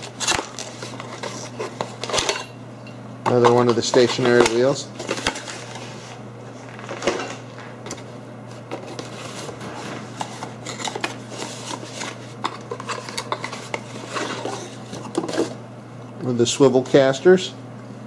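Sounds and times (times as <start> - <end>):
cardboard rustling and scraping: 0.0 - 2.3, 8.0 - 15.6.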